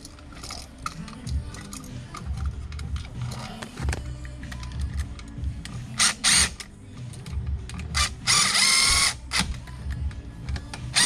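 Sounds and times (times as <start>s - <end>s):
cordless drill whining: 8.0s - 9.5s.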